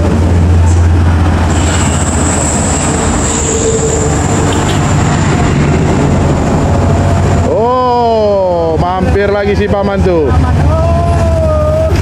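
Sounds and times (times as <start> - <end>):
high-pitched whine: 0.0 - 8.6
highway traffic passing: 0.0 - 12.0.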